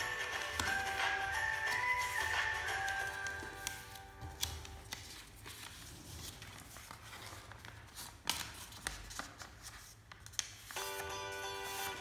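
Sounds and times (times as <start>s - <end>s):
paper rustling: 0.0s - 12.0s.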